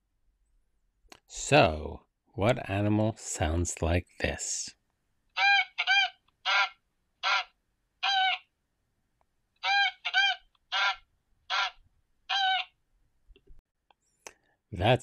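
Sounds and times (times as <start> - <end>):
goose honking: 5.4 - 8.4.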